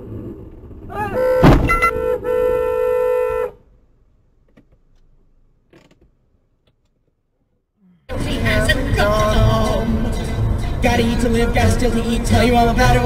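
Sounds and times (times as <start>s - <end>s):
car horn honking: 1.0s - 3.6s
sharp knock: 1.4s - 2.0s.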